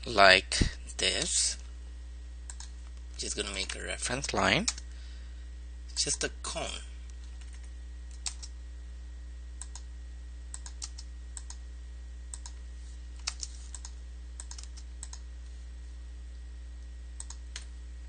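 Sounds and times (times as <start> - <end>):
steady low hum: 0.0 - 18.0
computer keyboard keys clicking: 7.4 - 8.5, 10.6 - 11.6, 13.2 - 15.2.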